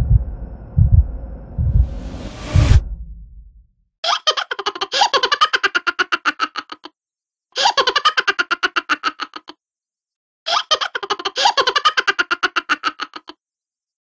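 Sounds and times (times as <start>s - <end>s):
giggling laughter sound effect: 4.0s - 6.9s, 7.6s - 9.6s, 10.5s - 13.4s.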